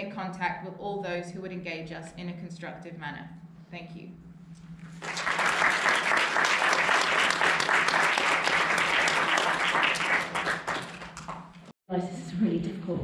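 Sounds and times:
audience applauding: 5.0 - 11.7.

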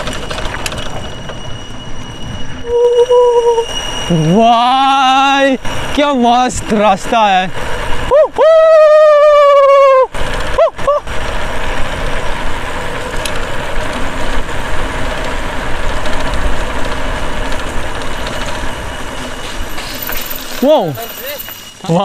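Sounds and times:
bicycle tyres on paved road: 0.0 - 22.0
person exclaiming: 2.7 - 3.6, 8.1 - 11.1.

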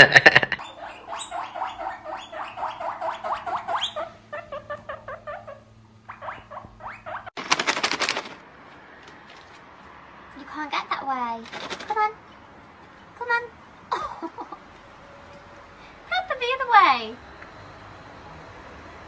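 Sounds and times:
rodent squeaking: 0.6 - 7.3.

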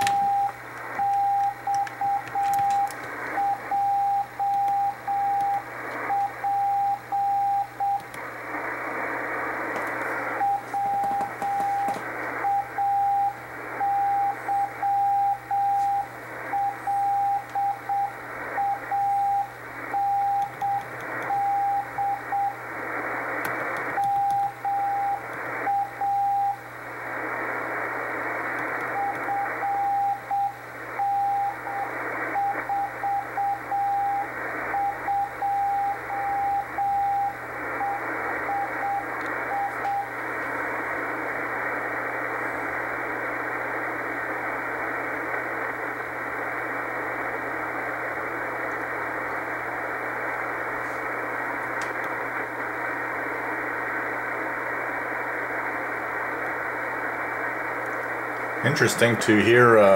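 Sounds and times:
morse code tone: 0.0 - 8.0, 10.4 - 22.6, 28.9 - 40.1
radio hiss and static: 0.0 - 59.9.

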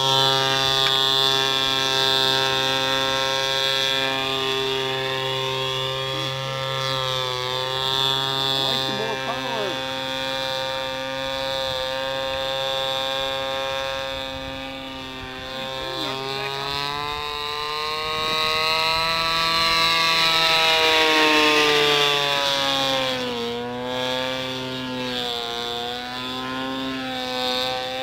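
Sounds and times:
model airplane engine: 0.0 - 28.0.

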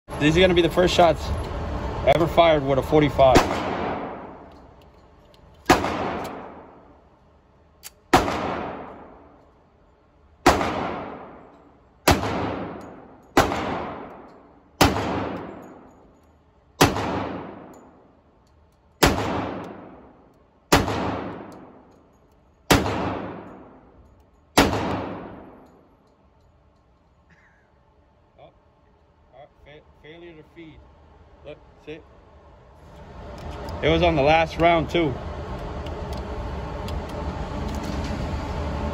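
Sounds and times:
pistol shots echoing indoors: 3.4 - 4.6, 5.6 - 7.0, 7.8 - 9.5, 10.4 - 16.0, 16.8 - 18.0, 19.0 - 22.0, 22.7 - 25.8.

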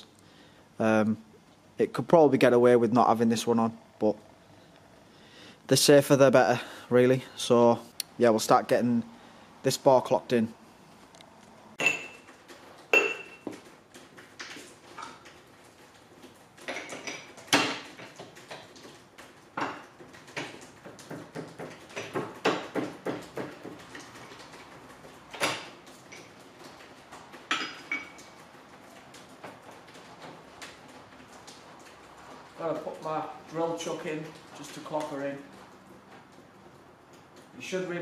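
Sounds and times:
metal tooling clinking and knocking: 11.8 - 13.7, 25.3 - 28.4.

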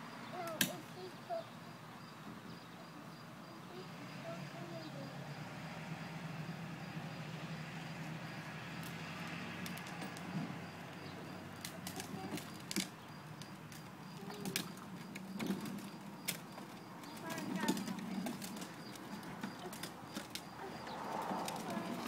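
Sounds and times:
plastic wheels rolling on concrete: 2.1 - 22.0
sharp clicks and knocks: 11.6 - 22.0.

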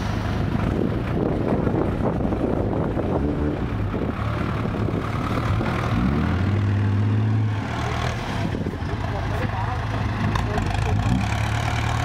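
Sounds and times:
truck diesel engine revving: 0.0 - 12.0.

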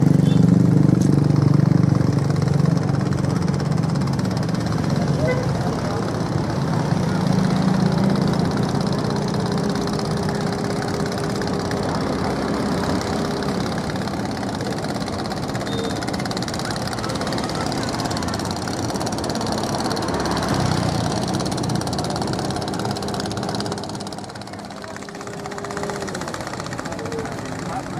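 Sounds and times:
low engine rumble: 0.0 - 27.9.

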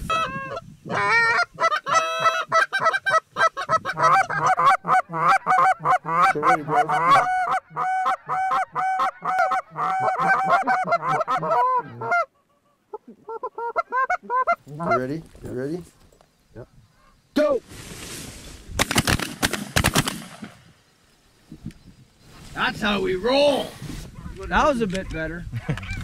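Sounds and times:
geese honking: 0.0 - 15.2.

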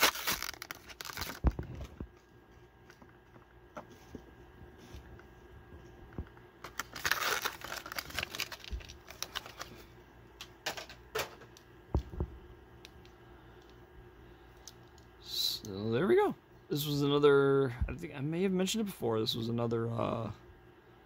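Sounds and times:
plastic packaging crinkling: 0.0 - 2.2, 6.6 - 9.9.

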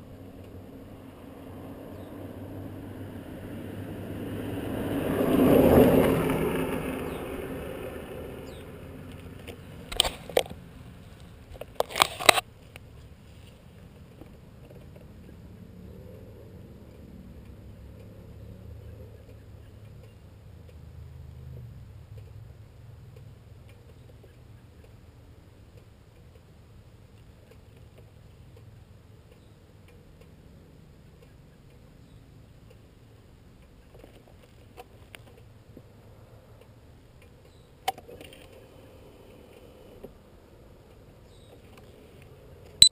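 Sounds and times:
light ticks: 0.4 - 0.6, 16.8 - 20.9, 23.0 - 25.0, 27.1 - 30.4.

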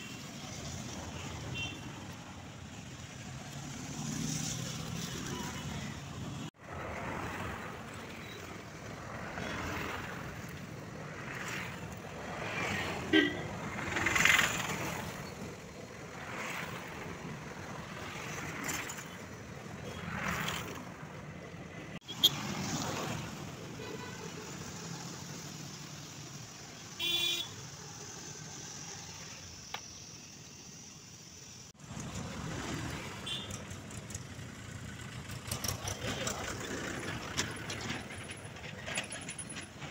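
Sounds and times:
vehicles passing: 0.0 - 39.9
vehicle horn toot: 27.0 - 27.6, 33.2 - 33.6.

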